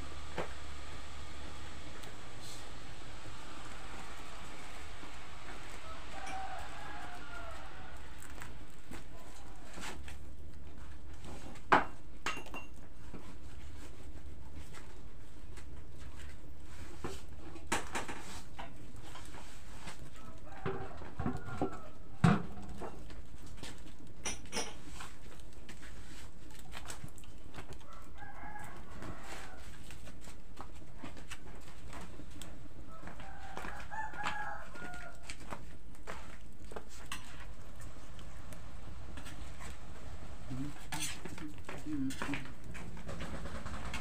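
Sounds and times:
rooster crowing: 4.0s - 8.8s, 19.8s - 22.4s, 27.7s - 30.0s, 32.8s - 36.3s
pots and utensils knocking: 11.7s - 12.8s, 24.2s - 24.8s.

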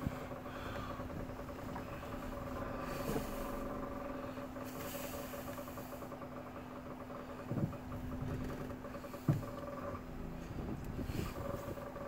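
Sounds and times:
vehicle engine idling: 0.0s - 12.0s.

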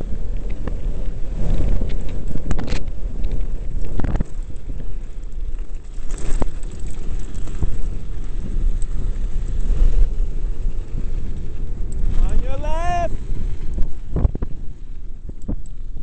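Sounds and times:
tyres rumbling over gravel: 0.0s - 15.0s
bike rattling over bumps: 0.0s - 16.0s
wind buffeting microphone: 0.0s - 16.0s.

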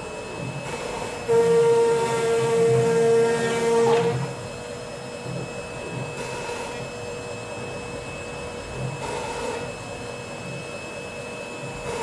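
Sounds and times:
spindle motor whining: 0.4s - 4.9s.

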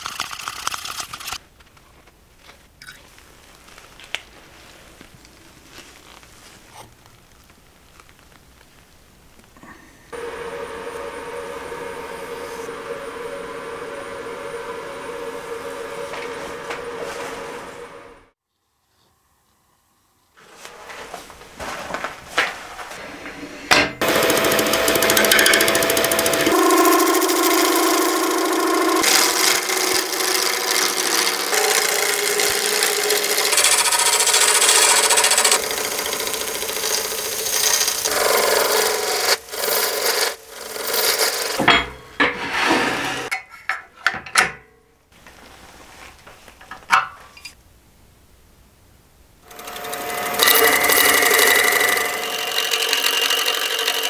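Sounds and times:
lathe chisel scraping wood: 10.1s - 18.2s, 24.0s - 41.6s, 42.2s - 43.3s, 49.5s - 54.0s.

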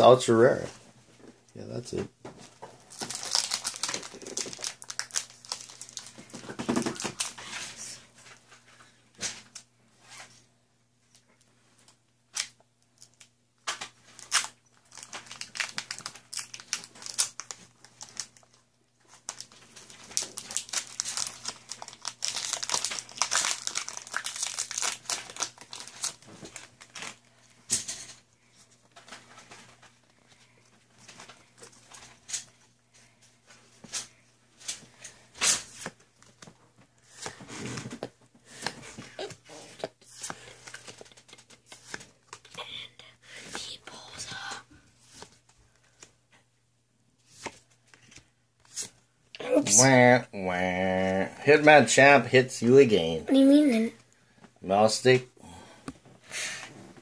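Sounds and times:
foil wrappers crinkling and tearing: 2.8s - 7.7s, 12.4s - 27.3s.

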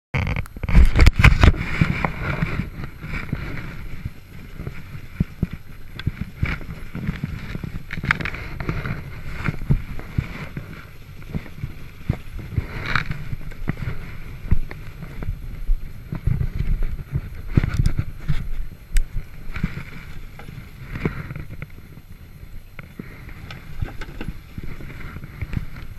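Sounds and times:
small clicks: 0.2s - 2.1s
two-stroke engine idling: 18.8s - 25.9s.

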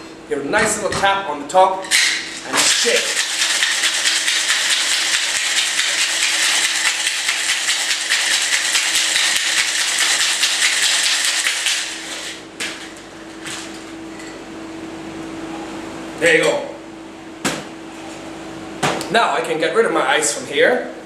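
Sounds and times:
ice rattling in cocktail shaker: 2.6s - 11.9s.

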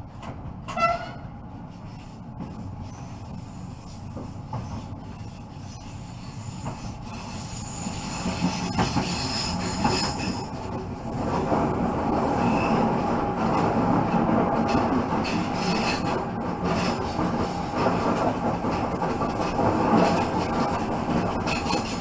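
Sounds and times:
wheels squealing against rails: 0.7s - 1.3s, 2.8s - 10.7s, 12.0s - 13.1s, 14.7s - 18.2s, 19.3s - 22.0s.

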